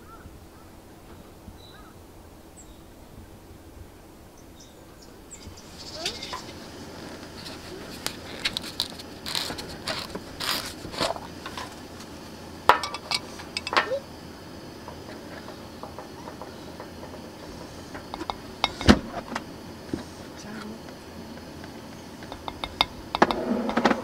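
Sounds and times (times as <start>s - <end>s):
spoon knocking loudly: 22.2s - 23.4s.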